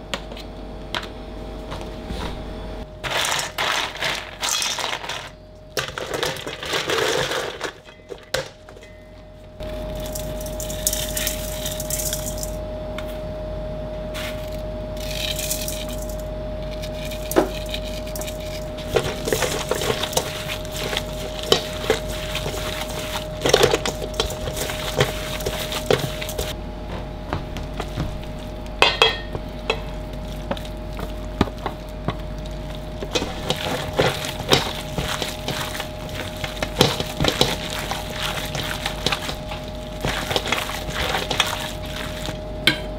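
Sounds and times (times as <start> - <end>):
kitchen hum: 0.0 - 42.9
ice cubes clattering in steel bowl: 3.0 - 8.9, 9.6 - 12.6, 15.0 - 26.6, 28.8 - 42.4
meat mixed by hand in bowl: 3.0 - 9.0, 9.6 - 12.6, 14.2 - 42.8.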